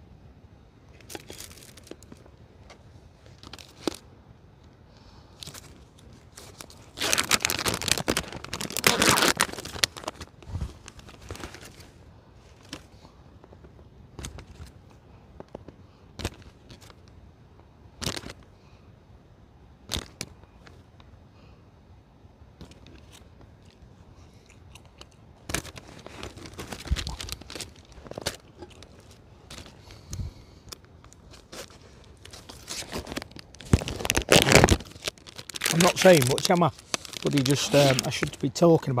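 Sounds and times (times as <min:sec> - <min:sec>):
packaging rustling and tearing: 0:01.0 - 0:02.3, 0:03.2 - 0:04.0, 0:05.4 - 0:14.8, 0:18.0 - 0:18.4, 0:25.4 - 0:39.0.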